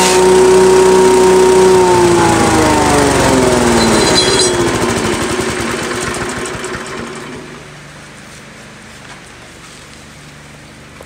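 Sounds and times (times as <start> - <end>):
small engine winding down: 0.0 - 7.7.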